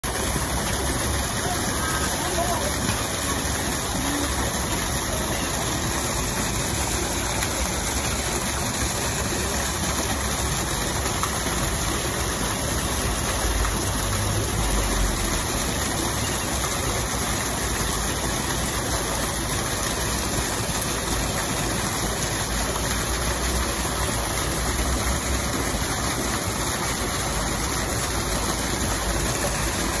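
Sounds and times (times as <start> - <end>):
water splashing into pond: 0.0 - 30.0.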